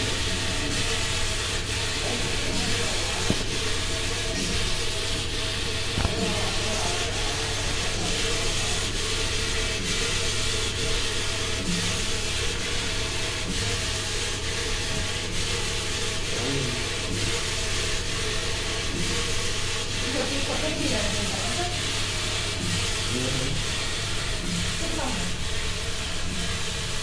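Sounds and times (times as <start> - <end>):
machine running with low hum: 0.0 - 27.0.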